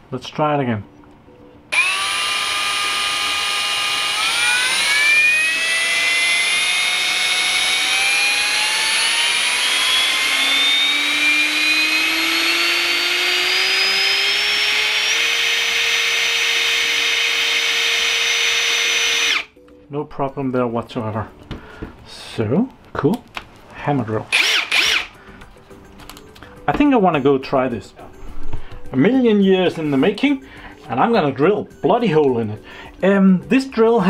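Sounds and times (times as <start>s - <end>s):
drill motor whining: 1.7s - 19.6s, 24.3s - 25.2s.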